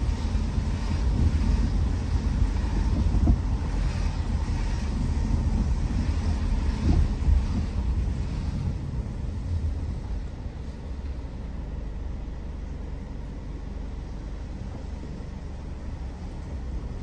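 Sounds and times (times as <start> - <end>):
wind noise on microphone: 0.0 - 10.9
car road rumble: 0.0 - 17.0.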